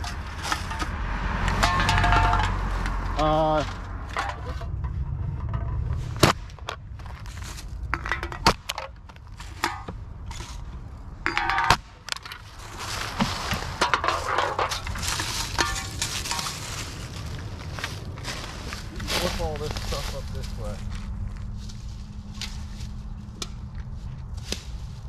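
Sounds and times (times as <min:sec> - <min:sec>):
metal cans crushed on asphalt: 0:00.0 - 0:04.8, 0:05.4 - 0:10.6, 0:11.2 - 0:17.0
dry leaves rustling: 0:00.0 - 0:08.2, 0:12.0 - 0:25.0.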